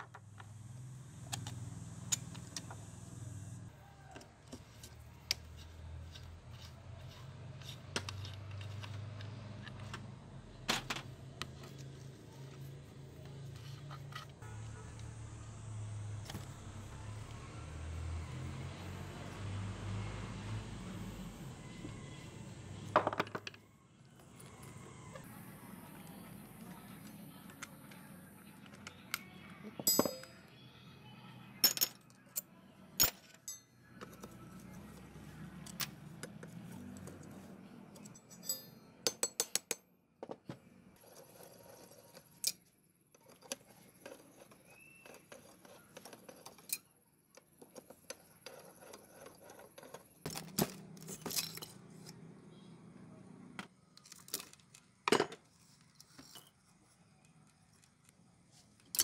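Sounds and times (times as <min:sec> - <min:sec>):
wrench clinking on metal: 0:29.8 - 0:30.4, 0:38.0 - 0:39.8.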